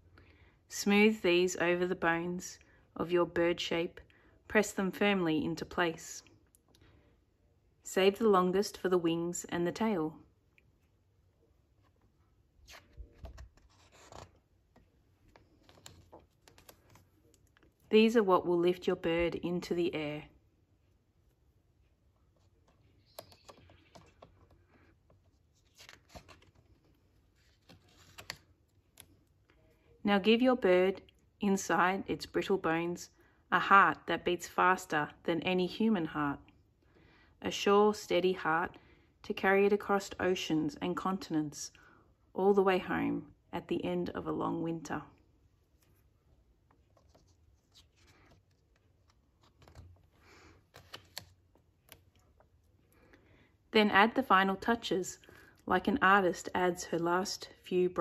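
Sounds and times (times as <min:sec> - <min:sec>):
book page rustling: 0:11.6 - 0:17.9, 0:22.1 - 0:29.5, 0:45.6 - 0:53.1.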